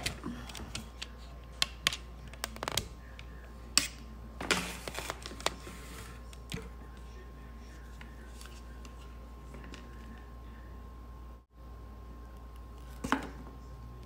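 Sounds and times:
paper and packaging rustle: 4.5s - 6.3s.

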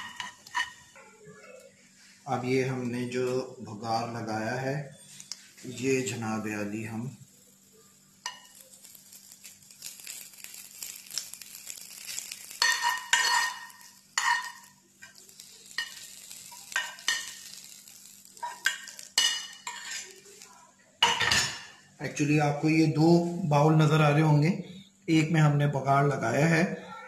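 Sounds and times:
hot oil sizzling: 0.0s - 1.0s, 1.6s - 22.8s
metal spoon scraping a pan: 0.0s - 1.0s, 8.2s - 21.8s.

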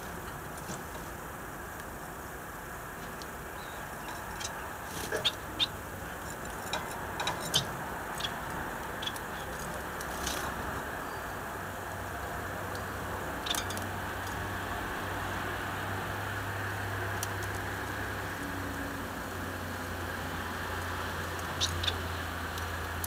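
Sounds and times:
finches chirping: 3.5s - 6.2s, 7.3s - 9.6s, 21.4s - 22.0s.

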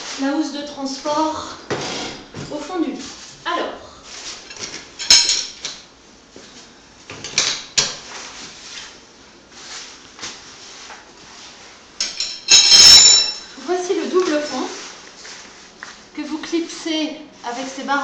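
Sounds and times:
poles and plastic parts clattering: 12.0s - 13.5s.

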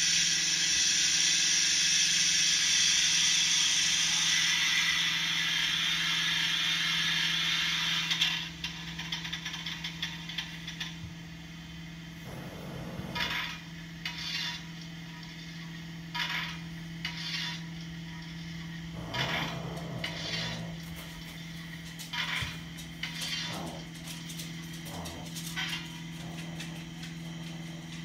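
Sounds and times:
low steady hum: 8.4s - 28.0s.

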